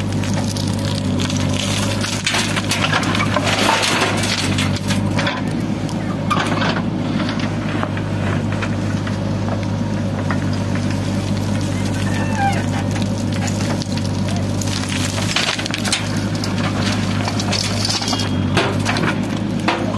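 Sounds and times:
diesel engine running under load: 0:00.0 - 0:19.9
stones and soil crunching: 0:00.0 - 0:19.9.

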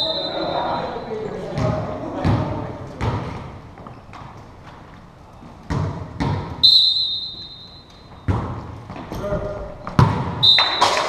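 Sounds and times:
referee's whistle blast: 0:00.0 - 0:01.0, 0:06.6 - 0:07.9, 0:10.4 - 0:11.0
volleyball thudding in a gym: 0:00.0 - 0:04.4, 0:05.5 - 0:11.0.

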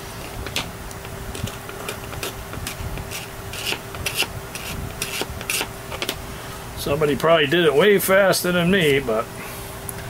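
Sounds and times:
faint steady hum: 0:00.0 - 0:10.0
rubbing and scraping strokes: 0:01.3 - 0:06.1.

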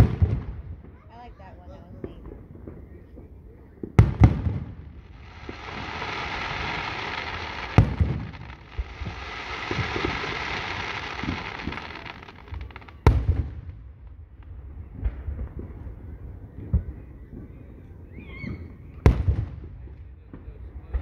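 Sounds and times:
fireworks bursting with bangs: 0:00.0 - 0:17.6, 0:18.7 - 0:21.0
sizzling hiss of sparks: 0:05.1 - 0:13.0.

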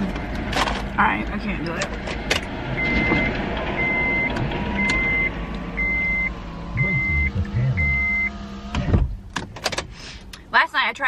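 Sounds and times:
vehicle running noise from inside: 0:00.0 - 0:11.0
electronic beeps: 0:02.8 - 0:08.4.

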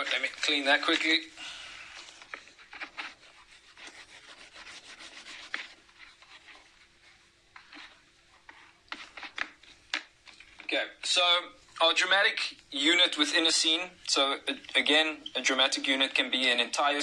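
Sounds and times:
eraser rubbing whiteboard: 0:02.3 - 0:09.5.

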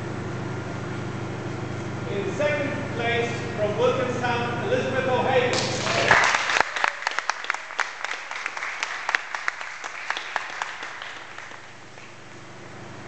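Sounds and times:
audience applauding: 0:05.6 - 0:11.8.

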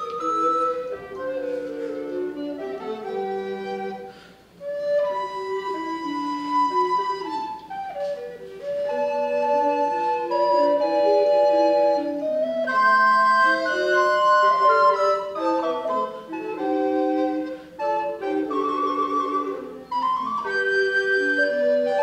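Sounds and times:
recorder quartet playing: 0:00.0 - 0:22.0.

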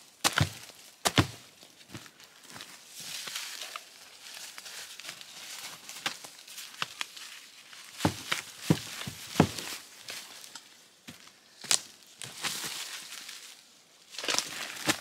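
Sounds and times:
twigs snapping and rustling: 0:03.0 - 0:10.8, 0:11.6 - 0:15.0.

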